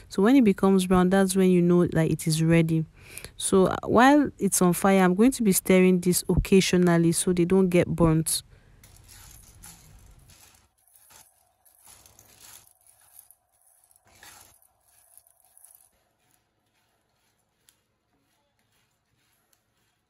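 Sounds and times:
dry beans stirred in frying pan: 0:08.7 - 0:20.0.

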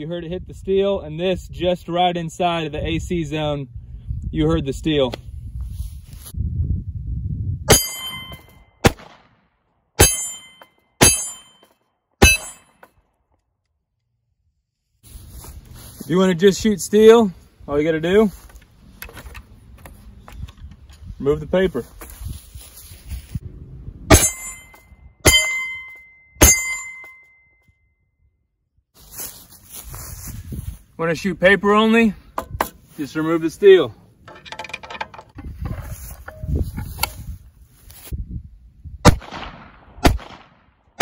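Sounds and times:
bullet clanging on steel plate: 0:07.7 - 0:08.6, 0:10.0 - 0:13.0, 0:24.1 - 0:27.6, 0:34.2 - 0:35.5
pistol shots: 0:08.8 - 0:09.3, 0:39.1 - 0:41.0.

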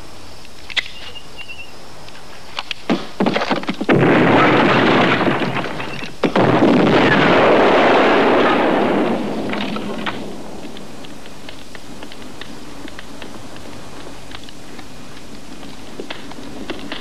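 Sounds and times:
explosion: 0:03.8 - 0:11.2
gunshots: 0:03.9 - 0:10.4.

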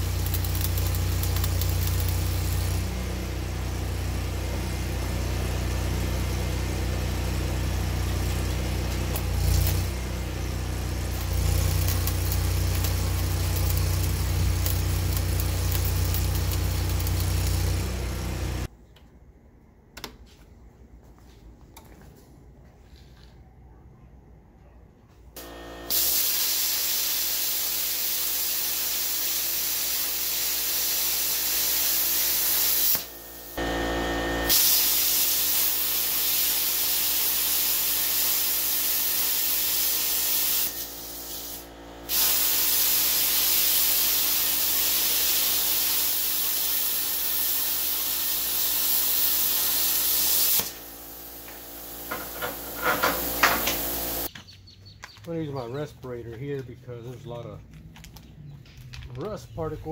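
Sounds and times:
plasma cutter hissing: 0:00.0 - 0:18.7, 0:25.4 - 0:54.3.

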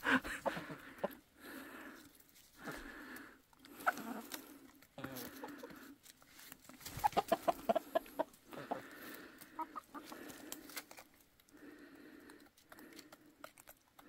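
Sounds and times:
hens clucking: 0:00.0 - 0:01.4, 0:03.6 - 0:06.0, 0:06.7 - 0:10.9.

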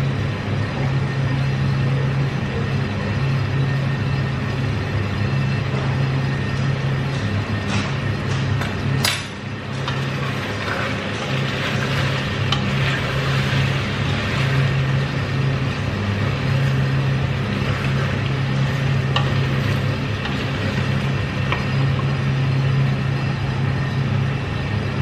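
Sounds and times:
steady low hum: 0:00.0 - 0:25.0
wooden spoon stirring in a pot: 0:09.7 - 0:22.2.

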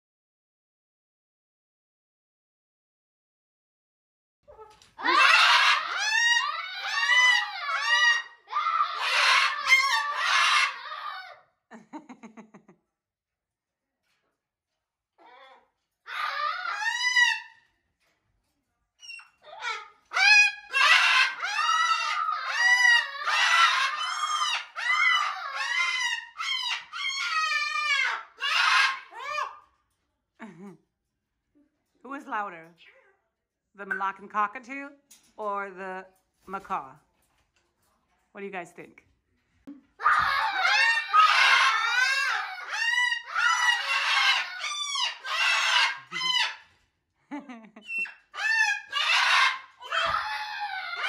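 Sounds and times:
parrots screaming: 0:04.5 - 0:11.4, 0:15.2 - 0:17.8, 0:19.0 - 0:29.9, 0:40.0 - 0:46.9, 0:47.8 - 0:51.0.

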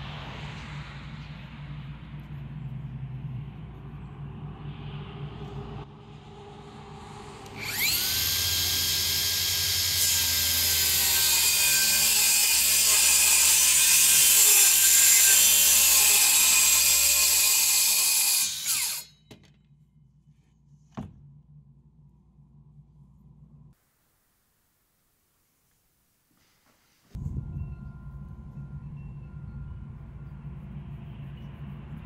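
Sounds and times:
circular saw whining: 0:07.0 - 0:19.3
saw cutting through panel: 0:07.5 - 0:19.2
knock: 0:20.9 - 0:21.2.

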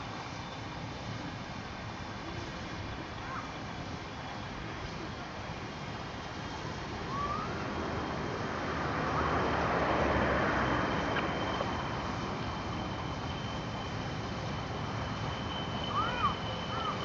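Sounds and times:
diesel locomotive engine working: 0:00.0 - 0:17.0
steady high whistle: 0:06.5 - 0:07.9, 0:08.8 - 0:17.0.

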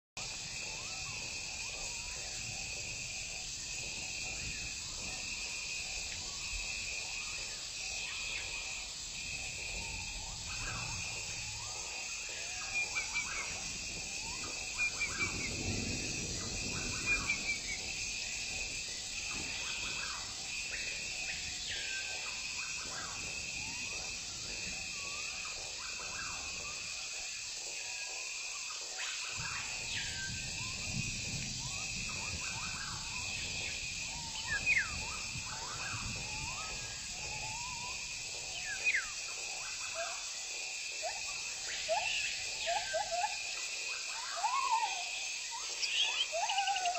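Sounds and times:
pulsing insect drone: 0:00.2 - 0:46.9
bird calls: 0:41.0 - 0:46.9.

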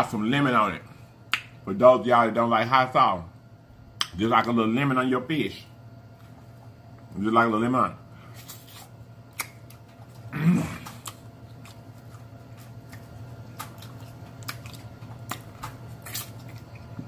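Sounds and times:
faint low hum: 0:00.0 - 0:17.0
wet mouth clicks and lip smacks: 0:09.3 - 0:09.8
man humming: 0:10.3 - 0:11.0.

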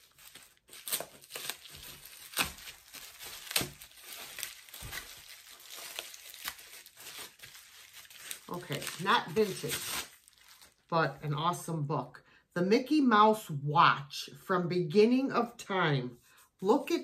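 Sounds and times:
plastic wrapping crinkling and tearing: 0:00.0 - 0:10.9.

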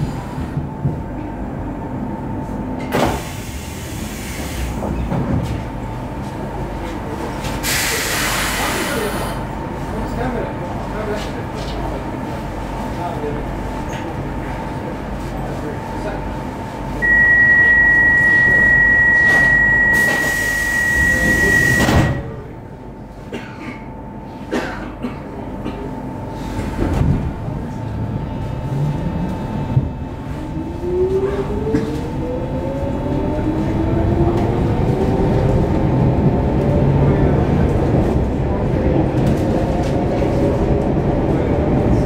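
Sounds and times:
air hiss: 0:07.6 - 0:09.2
door warning tone: 0:17.0 - 0:22.4
train doors thudding: 0:21.1 - 0:22.4.

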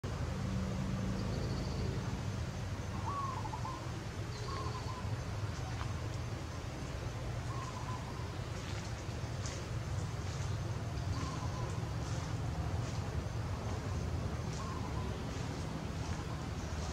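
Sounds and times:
bird calls: 0:02.8 - 0:16.9
steady low rumble: 0:03.7 - 0:16.9.

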